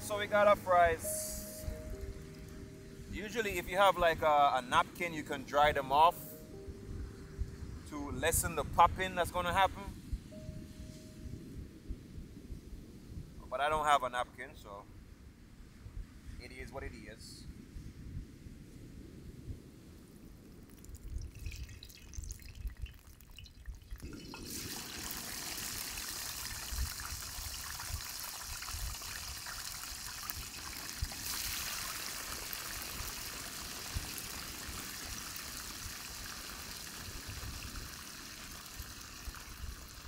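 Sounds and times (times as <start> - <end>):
fries sizzling in hot oil: 20.8 - 40.0.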